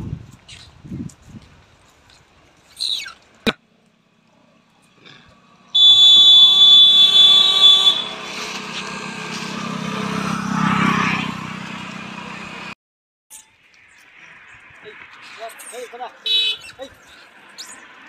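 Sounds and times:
vehicle passing on road: 0.8s - 12.8s, 13.6s - 18.0s
vehicle horn: 5.7s - 9.3s, 16.2s - 16.7s.

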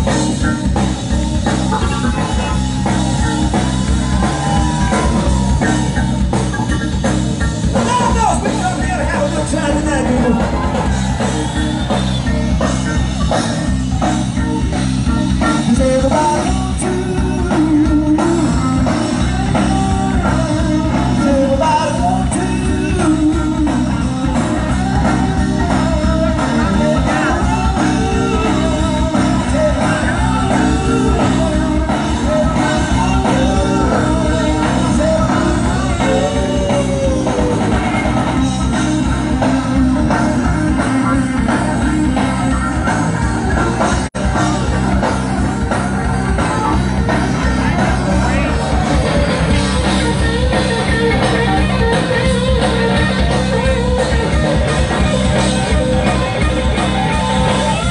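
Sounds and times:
live rock band playing: 0.0s - 57.9s
person singing: 15.4s - 43.0s.

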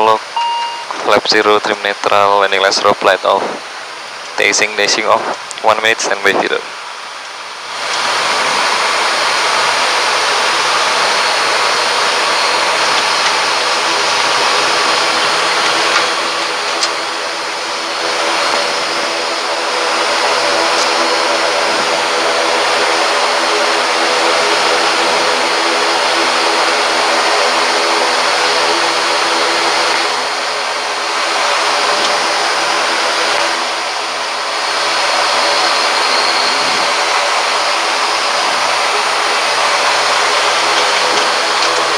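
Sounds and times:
turboprop engines droning: 0.0s - 41.9s.

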